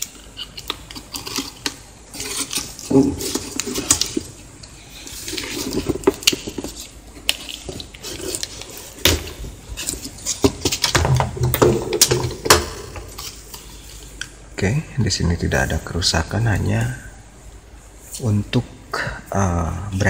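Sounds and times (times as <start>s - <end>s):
packaging rustling and crinkling: 0.0s - 14.2s.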